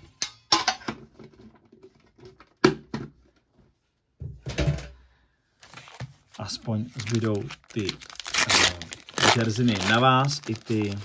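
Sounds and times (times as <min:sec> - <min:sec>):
packaging rustle: 0:05.6 - 0:11.0.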